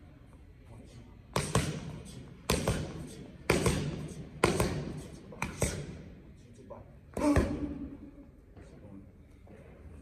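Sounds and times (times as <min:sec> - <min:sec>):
boxing gloves hitting focus mitts: 0:01.3 - 0:06.0, 0:07.1 - 0:07.8.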